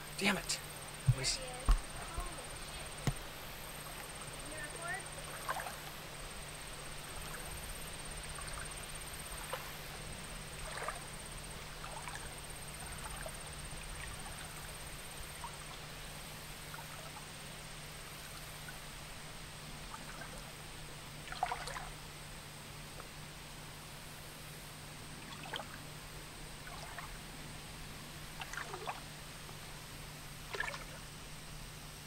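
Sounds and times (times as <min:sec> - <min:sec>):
steady low hum: 0:00.0 - 0:32.0
river trickling over rocks: 0:01.8 - 0:22.0, 0:28.2 - 0:31.2.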